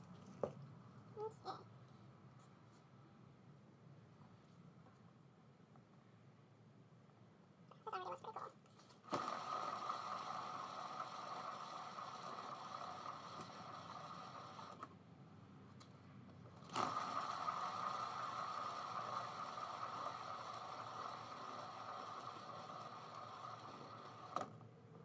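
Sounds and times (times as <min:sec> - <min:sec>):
turntable bearing whirring: 0:09.0 - 0:15.0, 0:16.4 - 0:25.0.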